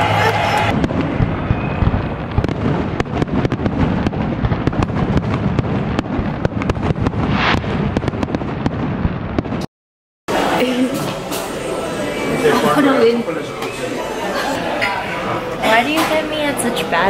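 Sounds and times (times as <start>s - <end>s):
fireworks bangs and crackles: 0.0s - 9.7s.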